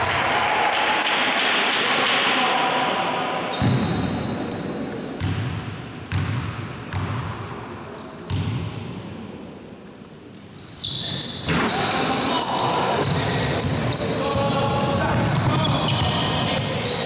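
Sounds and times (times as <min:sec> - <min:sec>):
clapping: 0:00.0 - 0:02.3.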